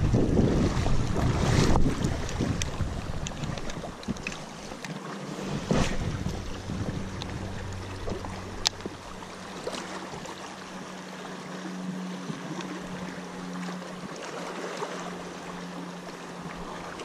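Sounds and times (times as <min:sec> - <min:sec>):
waves washing against rocks: 0:00.0 - 0:10.6
steady low hum: 0:00.0 - 0:17.0.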